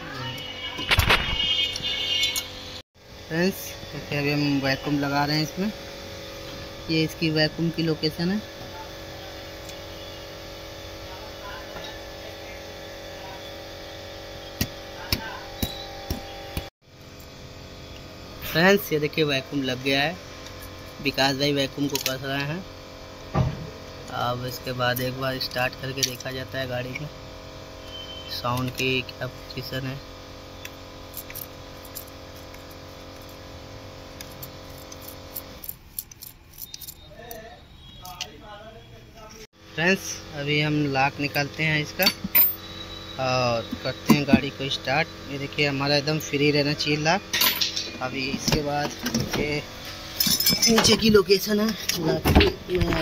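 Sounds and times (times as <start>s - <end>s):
steady workshop hum: 0.0s - 53.0s
metal tools clinking: 42.0s - 42.6s, 47.3s - 49.2s, 50.1s - 51.2s.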